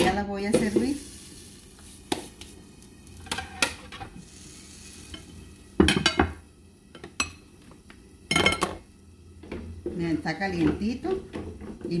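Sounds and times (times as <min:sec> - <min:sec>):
spatula scraping and knocking pan: 0:00.0 - 0:01.0, 0:03.2 - 0:04.2
food sizzling in a frying pan: 0:00.0 - 0:12.0.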